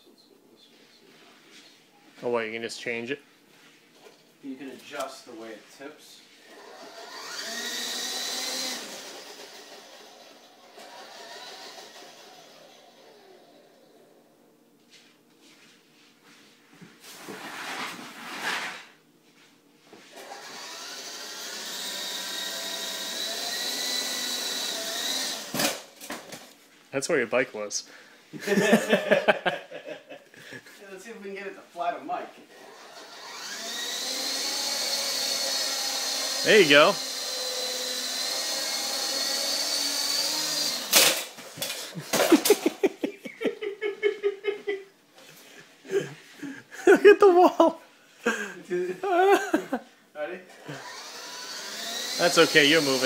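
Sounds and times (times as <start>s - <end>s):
toy helicopter motor whine: 6.5s - 14.1s, 20.2s - 25.9s, 32.6s - 42.6s, 50.7s - 53.0s.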